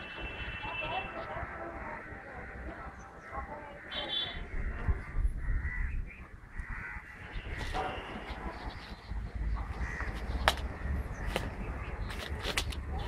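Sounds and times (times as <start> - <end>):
crows cawing: 1.4 - 8.0, 8.8 - 12.0.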